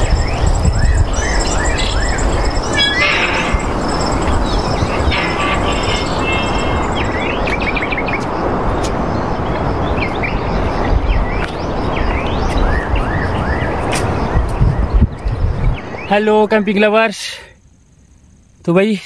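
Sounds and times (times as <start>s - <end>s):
steady rushing noise: 0.0s - 15.9s
small birds chirping: 0.0s - 16.8s
people talking: 16.1s - 17.5s, 18.7s - 19.0s.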